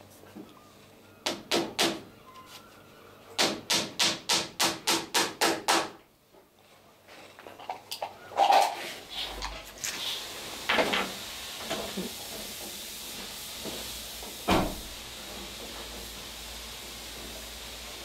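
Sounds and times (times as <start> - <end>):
steady background hiss: 5.7 - 18.0.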